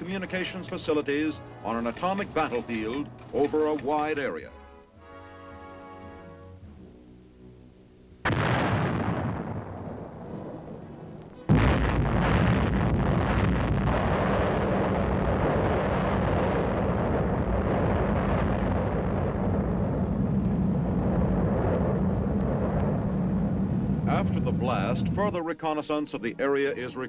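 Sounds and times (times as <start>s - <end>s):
artillery gun blast: 8.2s - 24.2s
explosion with long rumble: 8.2s - 25.3s.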